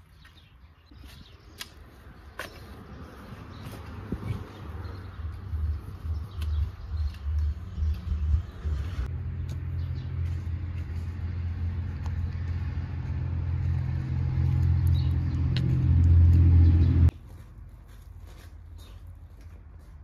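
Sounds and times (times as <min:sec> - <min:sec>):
vehicle engine rumble: 0:00.9 - 0:20.0.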